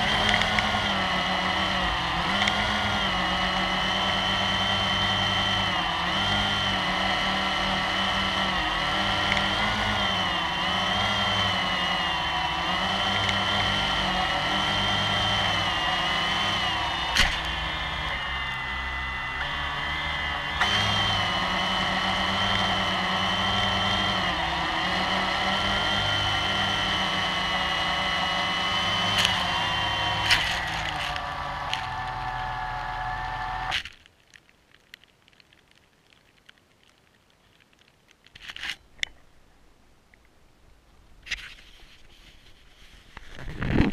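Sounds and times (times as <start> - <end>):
quadcopter propellers whirring: 0.0 - 33.8.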